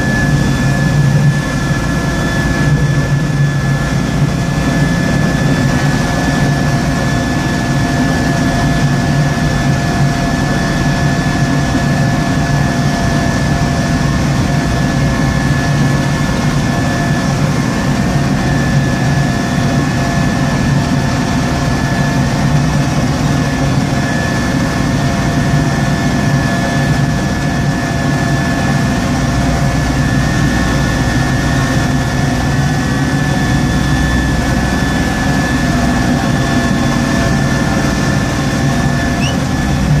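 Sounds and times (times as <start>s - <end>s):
thin high whine: 38.8s - 39.8s.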